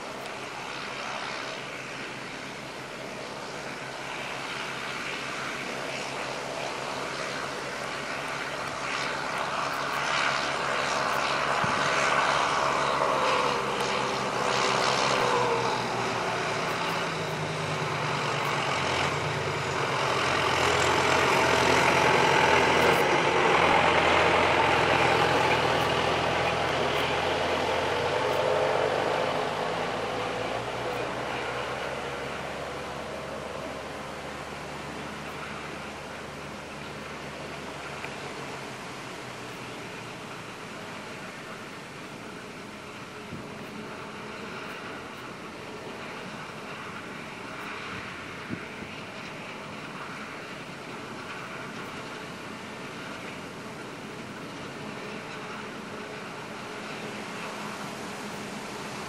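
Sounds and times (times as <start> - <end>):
tractor engine: 0.0 - 59.0.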